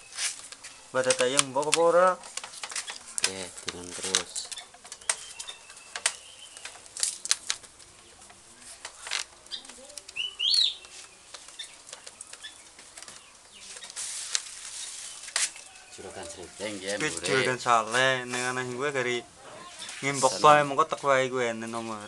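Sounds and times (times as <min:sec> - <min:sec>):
rattan strips rustling on bamboo: 0:00.0 - 0:22.0
sharp clicks: 0:00.5 - 0:14.0.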